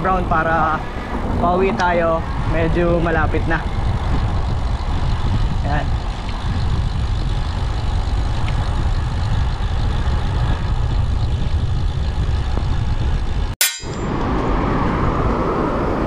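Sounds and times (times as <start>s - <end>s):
traffic rumble: 0.0s - 16.0s
wind on microphone: 0.0s - 16.0s
sharp click: 13.6s - 14.1s.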